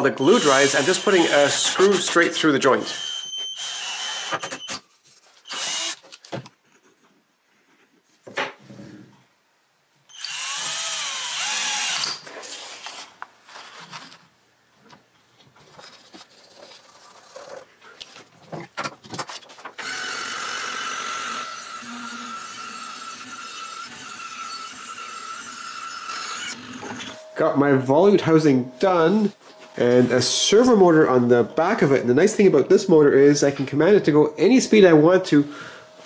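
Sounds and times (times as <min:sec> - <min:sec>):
band saw cutting wood: 0:00.2 - 0:04.5, 0:19.8 - 0:26.9
power drill driving a screw: 0:00.2 - 0:04.8, 0:05.4 - 0:06.2, 0:10.1 - 0:13.0, 0:19.8 - 0:27.1
knocks and handling sounds: 0:12.2 - 0:19.8.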